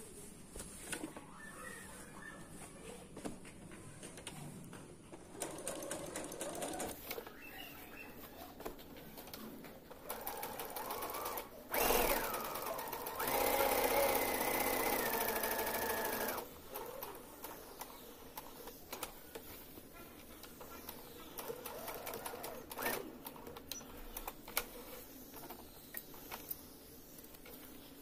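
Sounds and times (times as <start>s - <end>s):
sewing machine stitching: 9.9s - 17.6s, 21.4s - 23.6s.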